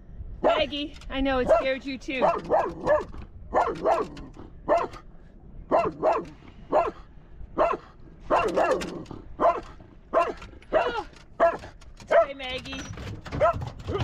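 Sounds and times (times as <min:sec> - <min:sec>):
dog barking: 0:01.4 - 0:05.0, 0:05.7 - 0:12.4, 0:13.4 - 0:14.0.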